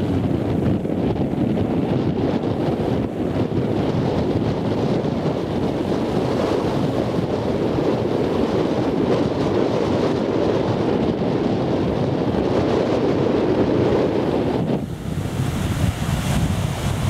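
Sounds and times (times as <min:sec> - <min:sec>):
ocean surf: 0:00.0 - 0:17.0
wind on microphone: 0:00.0 - 0:17.0.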